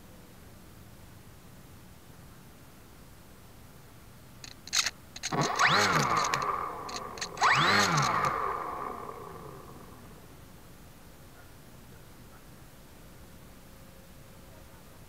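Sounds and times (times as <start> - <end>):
sharp clicks: 4.4 - 10.1
model plane motor whine: 4.8 - 10.2.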